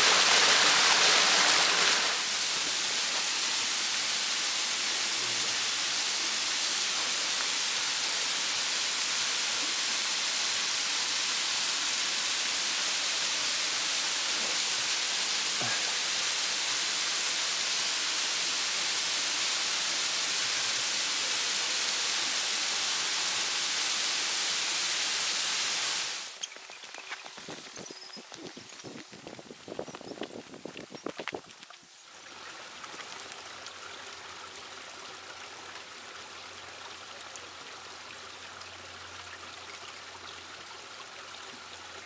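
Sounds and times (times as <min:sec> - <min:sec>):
waterfall rushing: 0:00.0 - 0:26.4.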